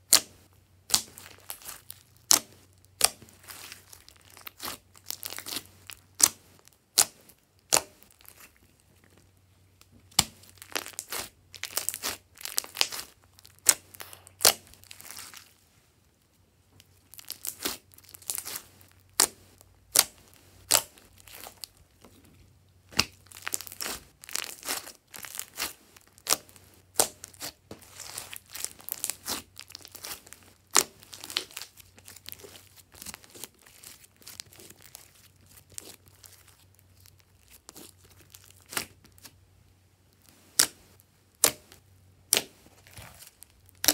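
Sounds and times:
slime squelching and popping: 0:10.1 - 0:15.5, 0:22.9 - 0:39.3, 0:40.3 - 0:43.9.

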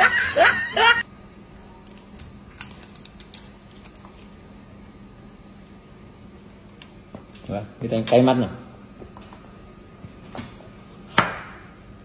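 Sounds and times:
onion skin peeling crackles: 0:01.6 - 0:04.4.

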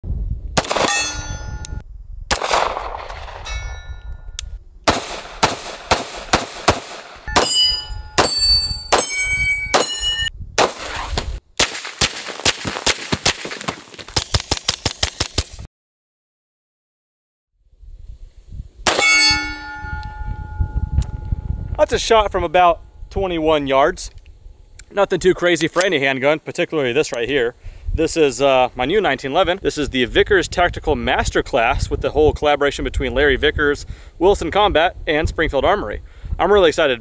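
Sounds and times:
pistol shots: 0:00.6 - 0:01.2, 0:02.3 - 0:03.5, 0:04.9 - 0:10.0, 0:18.9 - 0:19.2
hits ringing on steel targets: 0:00.6 - 0:01.8, 0:03.4 - 0:04.1, 0:05.4 - 0:10.3, 0:18.9 - 0:21.2.

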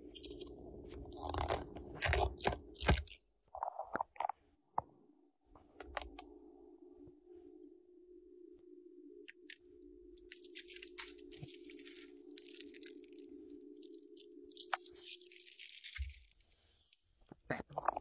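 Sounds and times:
cellophane wrapper crinkling: 0:00.0 - 0:03.2, 0:10.2 - 0:17.0
steady low hum: 0:00.0 - 0:18.0.

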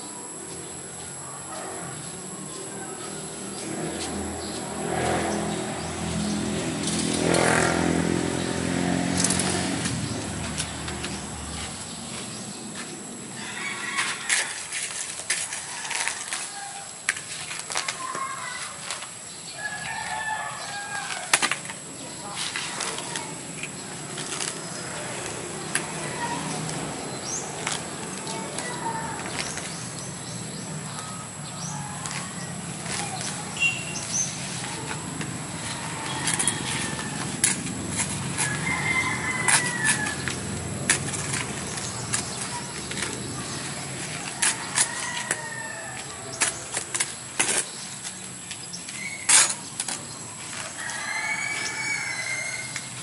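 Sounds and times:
motorcycle engine passing: 0:03.1 - 0:12.6, 0:29.4 - 0:44.8
small birds chirping: 0:23.1 - 0:37.6.

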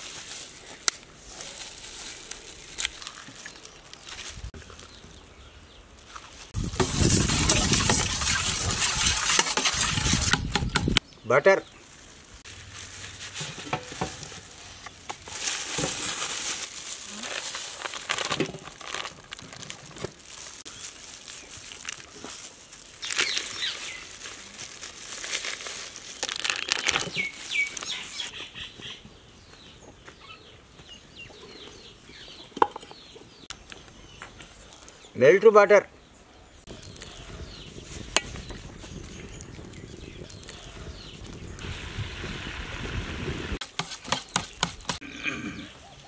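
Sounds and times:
wrapper crinkling and rustling: 0:00.0 - 0:05.2, 0:11.8 - 0:28.3.

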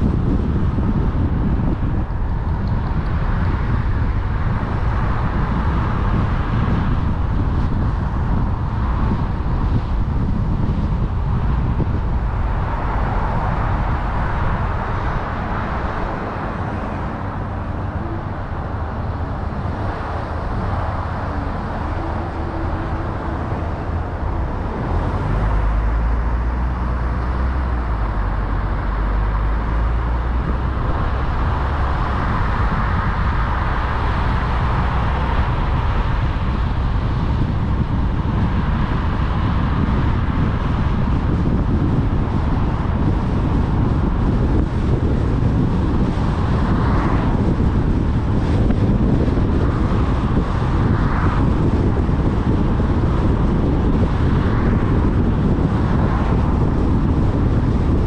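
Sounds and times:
car engine and tyre noise: 0:00.0 - 0:58.0.

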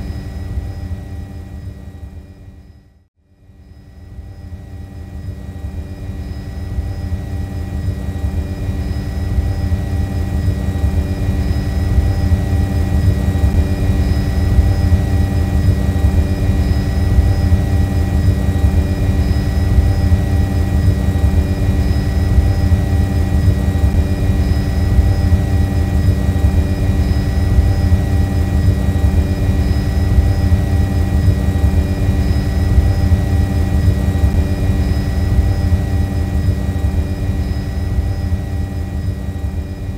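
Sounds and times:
drone propellers buzzing: 0:04.6 - 0:39.9.

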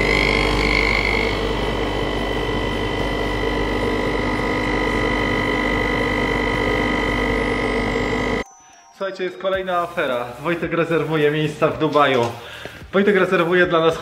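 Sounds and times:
espresso machine pump humming: 0:00.0 - 0:08.4.

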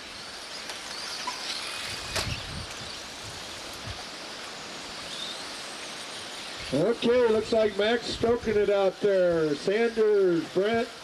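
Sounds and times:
rising electric motor whines: 0:00.0 - 0:11.0
wind rumble: 0:01.9 - 0:04.1.

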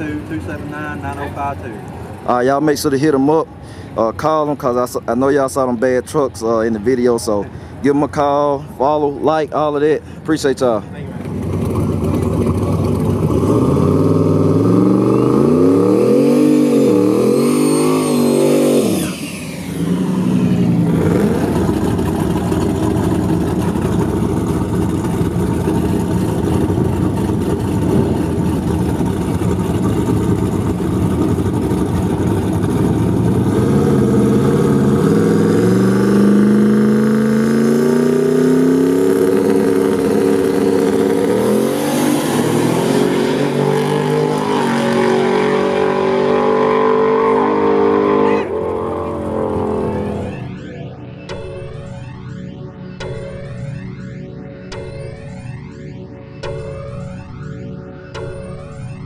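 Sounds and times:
truck engine revving: 0:10.9 - 0:51.1.

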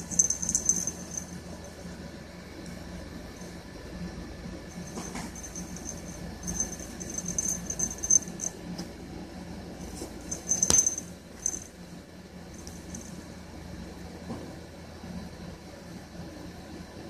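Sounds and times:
cat toy bell jingling: 0:00.0 - 0:01.8, 0:04.7 - 0:08.6, 0:10.2 - 0:11.7
faint steady hum: 0:00.0 - 0:17.0.

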